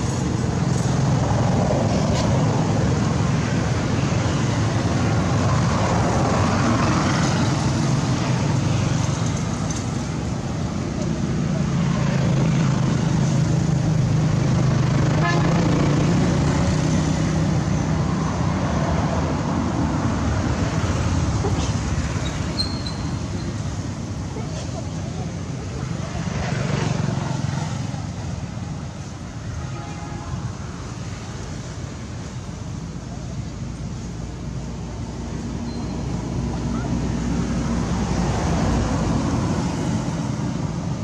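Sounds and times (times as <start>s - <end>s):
motor traffic drone: 0.0s - 41.0s
voices: 21.4s - 29.6s.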